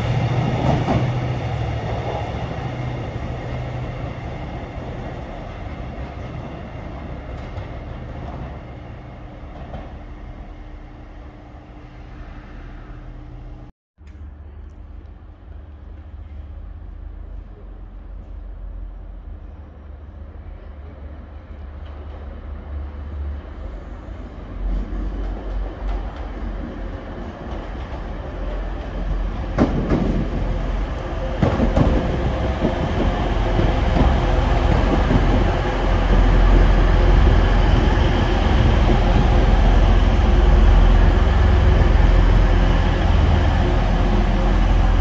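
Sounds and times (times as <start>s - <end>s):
train approaching: 0.0s - 13.7s, 14.6s - 45.0s
train wheels clacking: 24.7s - 45.0s.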